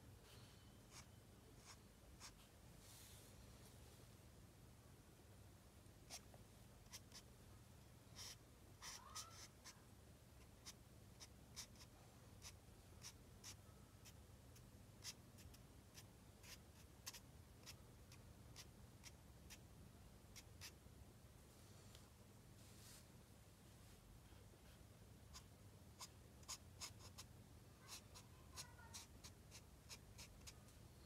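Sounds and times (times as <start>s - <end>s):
marker scratching on paper: 0.9s - 2.5s, 6.8s - 7.2s, 8.2s - 9.8s, 10.6s - 14.2s, 15.0s - 17.8s, 18.5s - 19.6s, 20.4s - 20.8s, 25.3s - 30.6s.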